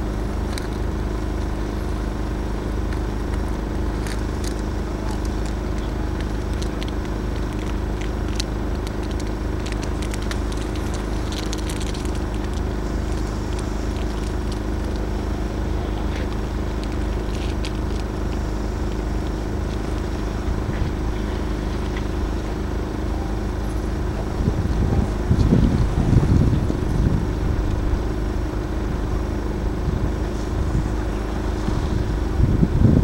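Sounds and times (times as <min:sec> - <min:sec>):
low mechanical hum: 0:00.0 - 0:33.0
faint clicks and crackles: 0:00.2 - 0:24.3.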